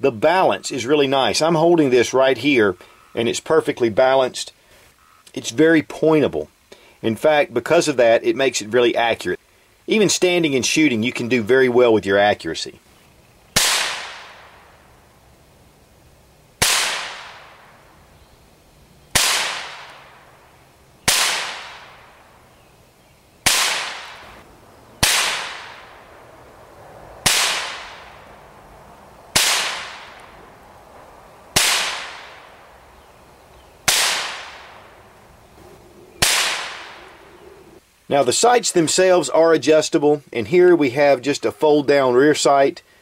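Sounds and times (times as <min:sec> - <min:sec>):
rifle shots echoing: 0:13.6 - 0:14.7, 0:16.6 - 0:17.9, 0:19.1 - 0:20.4, 0:21.0 - 0:22.3, 0:23.4 - 0:24.4, 0:25.0 - 0:26.2, 0:27.2 - 0:28.4, 0:29.3 - 0:30.6, 0:31.5 - 0:32.8, 0:33.8 - 0:35.1, 0:36.2 - 0:37.3.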